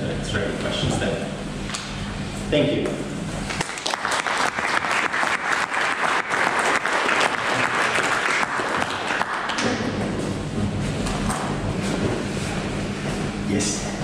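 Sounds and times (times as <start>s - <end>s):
audience applauding: 3.5s - 10.0s.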